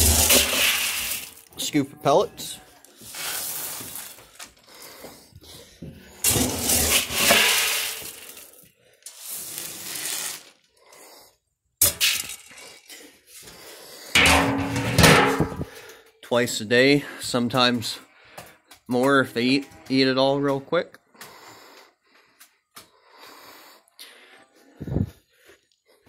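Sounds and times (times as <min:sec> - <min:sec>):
feed pellets poured into trough: 0:00.0 - 0:01.7, 0:03.0 - 0:04.3, 0:06.2 - 0:10.6.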